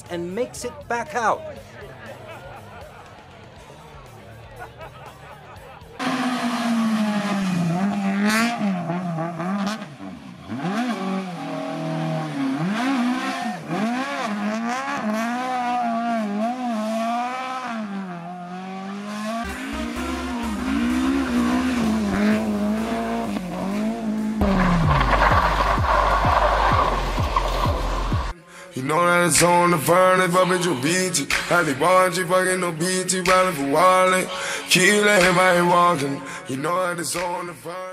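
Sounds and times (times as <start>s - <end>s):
rally car engine revving: 5.9s - 28.3s.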